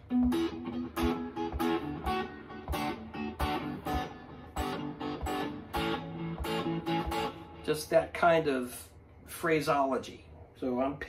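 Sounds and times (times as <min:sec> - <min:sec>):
electric guitar chord stabs: 0:00.0 - 0:08.0.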